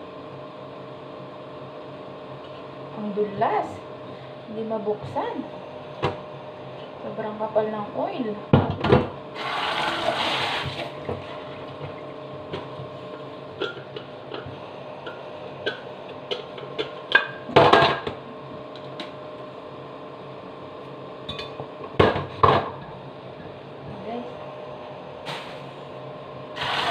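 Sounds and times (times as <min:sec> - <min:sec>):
steady hum: 0:00.0 - 0:26.9
kitchen tap running: 0:09.4 - 0:11.2.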